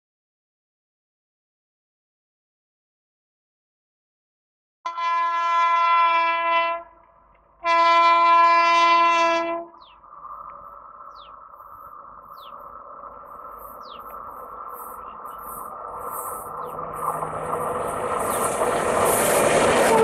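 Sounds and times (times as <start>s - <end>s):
locomotive horn blasts: 4.9s - 6.9s, 7.6s - 9.8s, 19.8s - 20.0s
train running noise: 6.8s - 20.0s.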